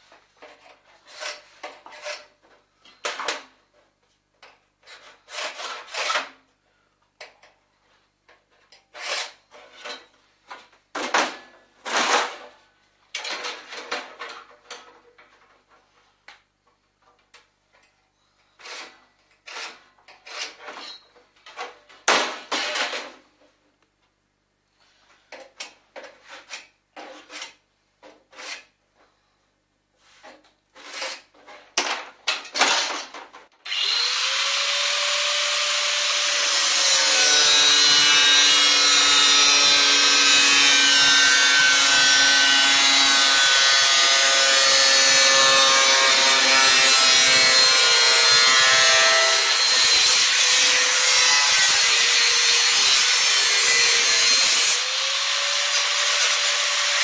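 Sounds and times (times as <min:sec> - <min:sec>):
angle grinder cutting sheet metal: 0:33.7 - 0:57.0.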